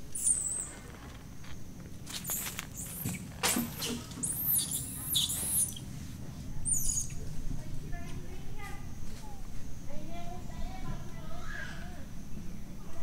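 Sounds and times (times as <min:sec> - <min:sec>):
high-pitched squeaks and chirps: 0:00.1 - 0:00.8, 0:02.2 - 0:05.9, 0:06.6 - 0:07.2
rustling scuffle: 0:00.1 - 0:07.5.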